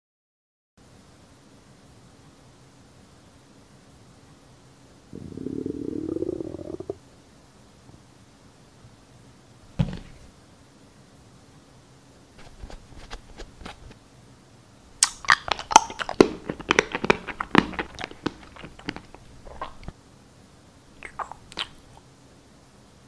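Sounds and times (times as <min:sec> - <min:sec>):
toothpaste tube crinkling: 0:15.4 - 0:19.9.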